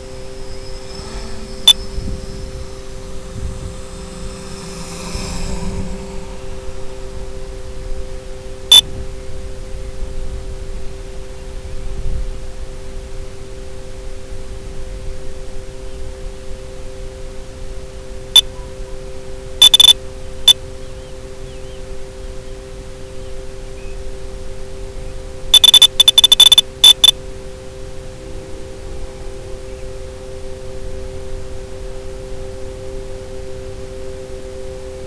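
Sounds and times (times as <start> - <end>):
high electronic beeps: 0.0 - 7.0, 19.6 - 20.0, 25.5 - 27.2
steady hiss: 0.0 - 25.5, 26.6 - 35.0
two-note electronic hum: 0.0 - 35.0.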